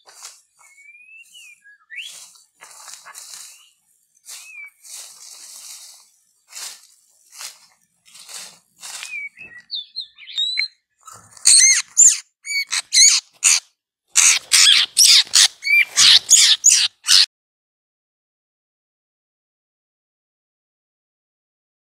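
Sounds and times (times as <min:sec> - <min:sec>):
harsh bird calls: 0:00.0 - 0:05.8, 0:08.9 - 0:13.6, 0:14.2 - 0:17.3
bird whistling: 0:00.6 - 0:02.2, 0:04.4 - 0:04.8, 0:09.0 - 0:10.8, 0:11.5 - 0:13.2, 0:14.2 - 0:17.3.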